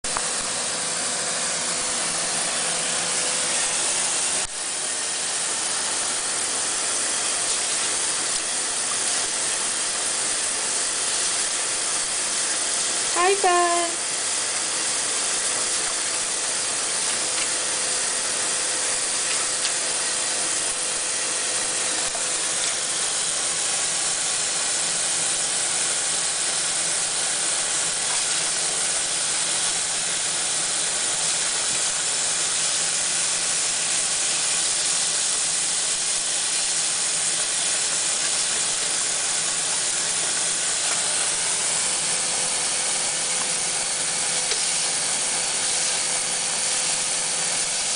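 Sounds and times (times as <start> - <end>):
faucet running into water: 5.2 - 47.9.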